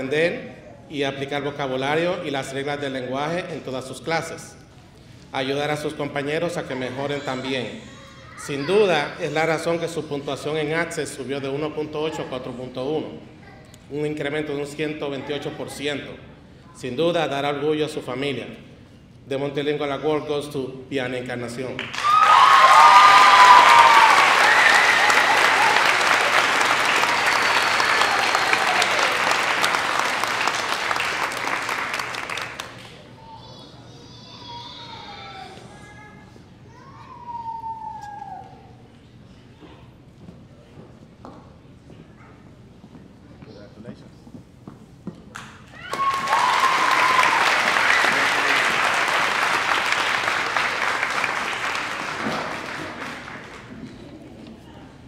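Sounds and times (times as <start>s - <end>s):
high whoops: 21.8s - 31.0s, 36.7s - 38.8s, 45.7s - 49.5s
audience applauding and cheering: 21.8s - 33.1s, 45.4s - 54.0s.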